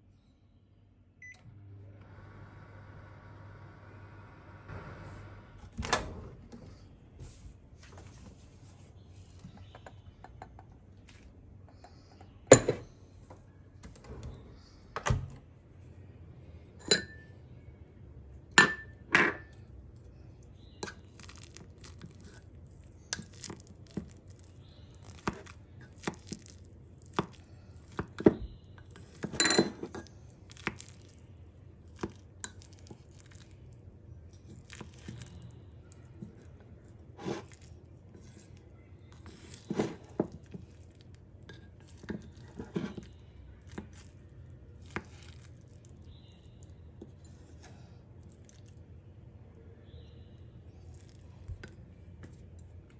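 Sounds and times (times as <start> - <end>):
ceramic mug and lid clinking: 16.8 - 17.3, 18.6 - 19.5, 29.2 - 30.0.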